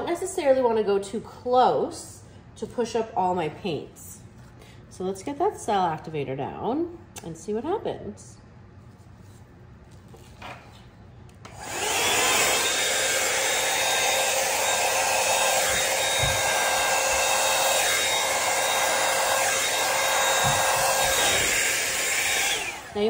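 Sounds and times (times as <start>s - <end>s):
hair dryer whine and air rush: 11.4s - 23.0s.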